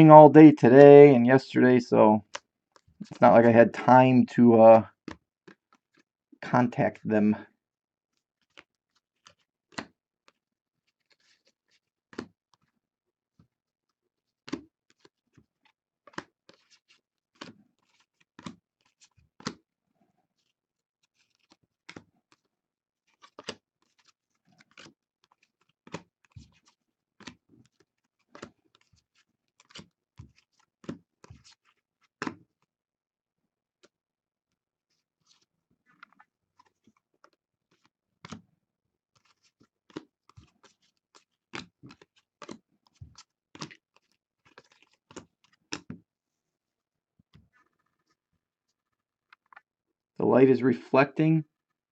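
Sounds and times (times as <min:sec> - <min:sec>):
light rustling of cards: 0:01.6 - 0:07.4, 0:08.2 - 0:12.8, 0:14.2 - 0:19.7, 0:20.3 - 0:32.7, 0:34.9 - 0:38.5, 0:39.2 - 0:49.6
cards clicking and slapping: 0:08.4 - 0:12.7, 0:14.4 - 0:19.6, 0:21.2 - 0:22.5, 0:23.1 - 0:32.6, 0:35.2 - 0:38.5, 0:39.2 - 0:46.0.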